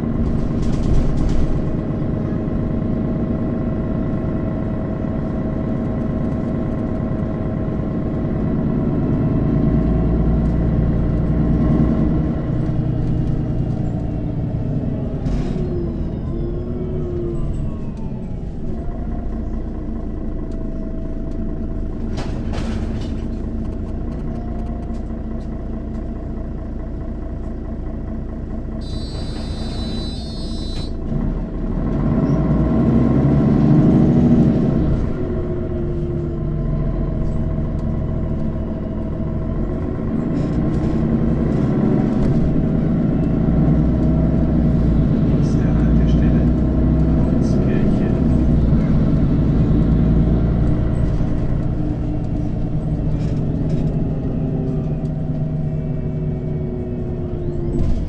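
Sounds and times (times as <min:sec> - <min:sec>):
bus diesel engine running: 0:00.0 - 0:58.0.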